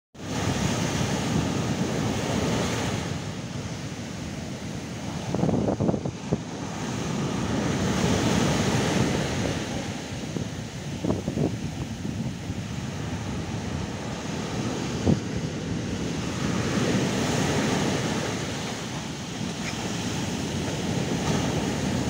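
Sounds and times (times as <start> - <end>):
surf breaking on beach: 0.2 - 22.0
wind buffeting microphone: 0.2 - 22.0.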